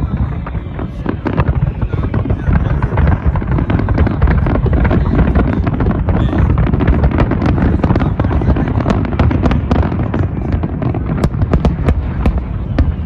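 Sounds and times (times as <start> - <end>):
fireworks bursting and crackling: 0.0 - 13.0
heavy low rumble: 0.0 - 13.0.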